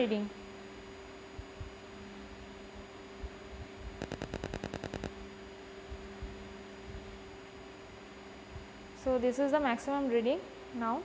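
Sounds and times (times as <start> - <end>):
electrical hum: 0.0 - 11.0
quick run of clicks: 4.0 - 5.1.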